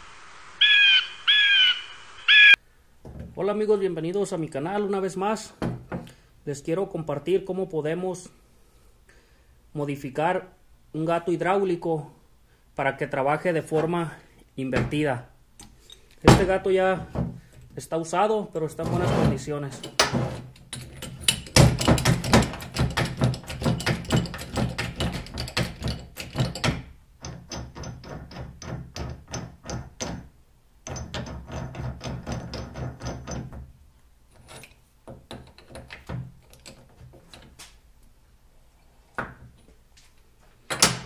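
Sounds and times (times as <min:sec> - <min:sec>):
bottle jack handle clacking: 0:19.8 - 0:30.2.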